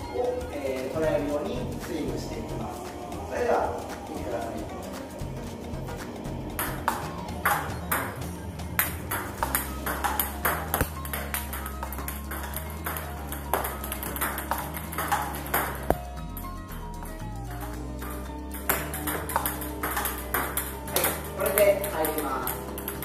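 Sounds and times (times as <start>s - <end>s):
background music: 0.0s - 23.0s
table tennis ball clicking: 8.8s - 16.5s, 17.5s - 23.0s.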